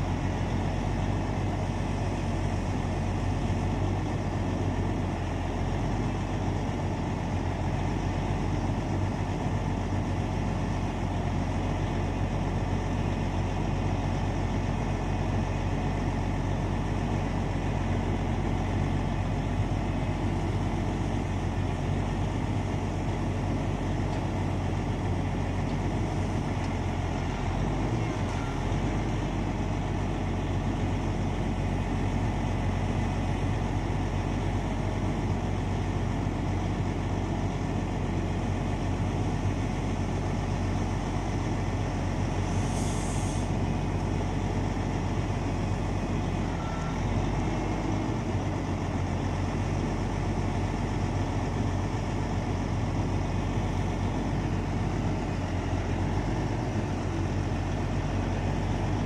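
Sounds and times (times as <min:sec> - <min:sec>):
diesel engine running: 0:00.0 - 0:59.0
air hiss: 0:42.4 - 0:43.5.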